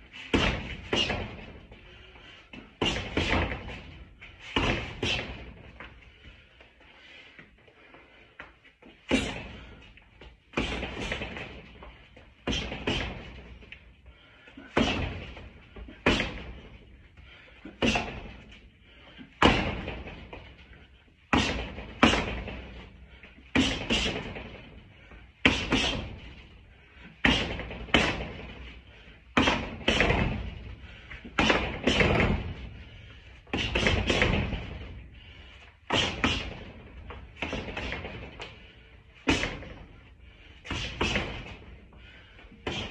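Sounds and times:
boxing gloves slapping pads: 0.0 - 1.8, 2.5 - 6.0, 9.0 - 13.8, 14.6 - 16.9, 17.6 - 18.6, 19.4 - 20.5, 21.3 - 22.8, 23.5 - 24.8, 25.4 - 26.5, 27.1 - 32.7, 33.4 - 35.0, 35.8 - 40.0, 40.6 - 41.8, 42.4 - 42.9.

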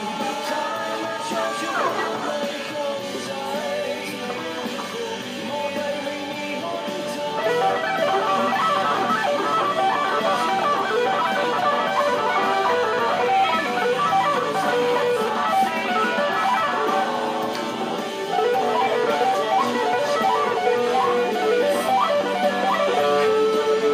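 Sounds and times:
electric guitar lead solo: 7.3 - 23.9.

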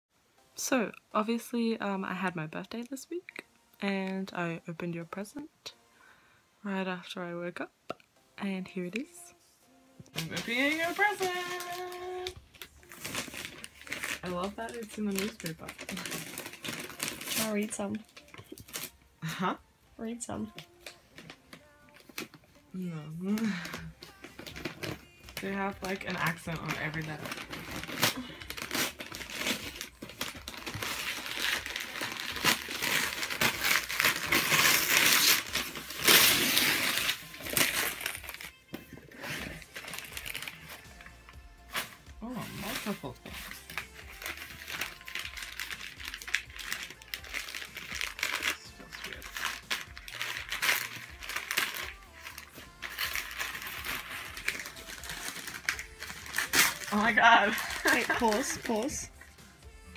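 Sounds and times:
paper crinkling and tearing: 10.2 - 19.0, 20.5 - 22.5, 23.2 - 41.1, 41.7 - 59.1.

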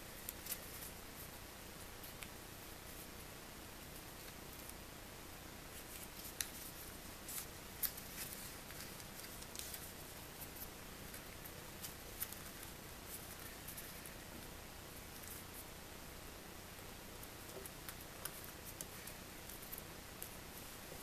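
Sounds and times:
paper rustling and crinkling: 5.8 - 14.2.

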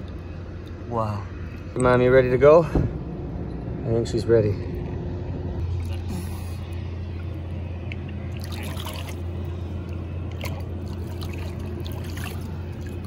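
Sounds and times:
steady low hum: 0.0 - 13.0
river water trickling and splashing: 7.8 - 13.0.

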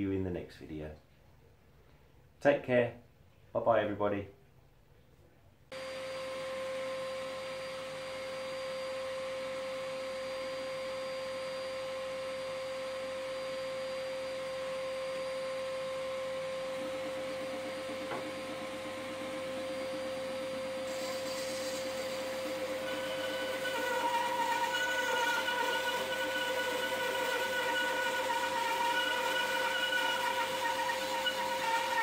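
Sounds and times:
bandsaw humming: 16.0 - 32.0
bandsaw cutting wood: 16.6 - 32.0.

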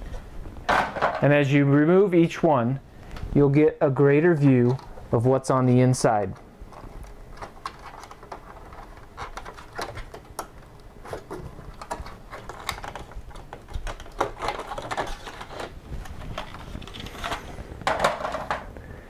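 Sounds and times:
plastic covers clicking and snapping: 6.2 - 18.7.

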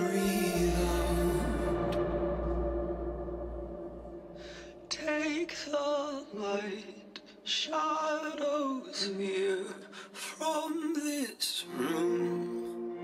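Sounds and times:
held chord: 0.0 - 5.2
person singing: 0.0 - 13.0.

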